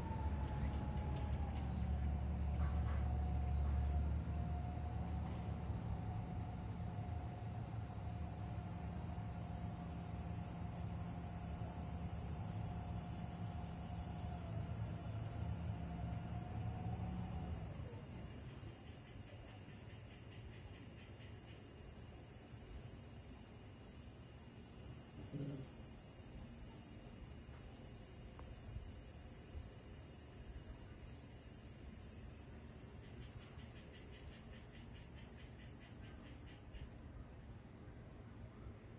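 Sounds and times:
insects chorus: 2.2 - 38.9.

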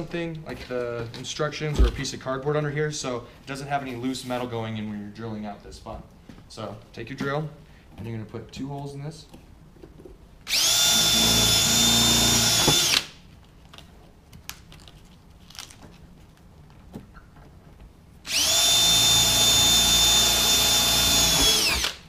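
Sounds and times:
power drill whining: 10.5 - 13.2, 18.3 - 22.0.

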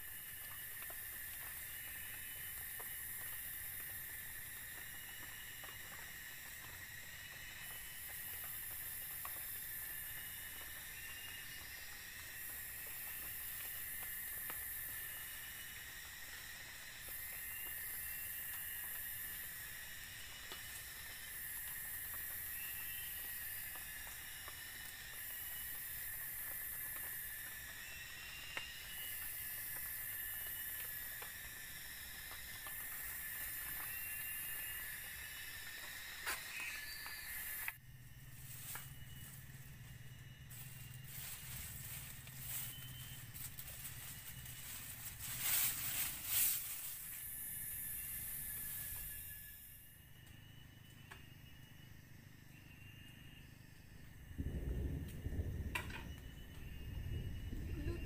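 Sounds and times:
insects droning: 0.0 - 58.0
shrill insect buzz: 0.0 - 58.0
grass rustling and clicking: 40.5 - 47.2.

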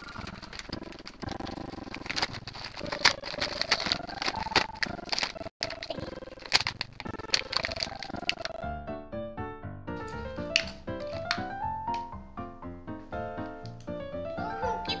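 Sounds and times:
plastic packaging crinkling: 0.0 - 8.6, 10.0 - 11.6.

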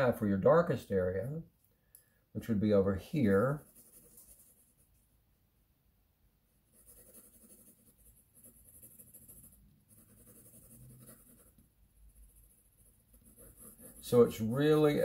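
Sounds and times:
pencil scratching on paper: 3.2 - 4.9, 6.7 - 15.0.

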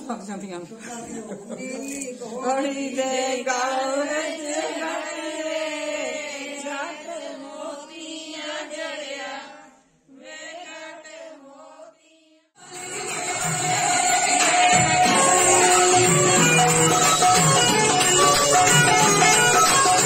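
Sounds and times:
women singing folk song together: 1.5 - 15.7.

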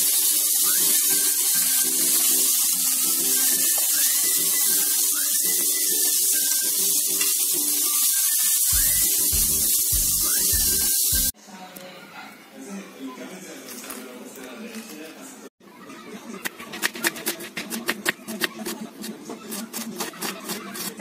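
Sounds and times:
background music: 0.0 - 11.3
meat sizzling in oil: 0.0 - 11.3
deep bass beat: 8.8 - 11.3.

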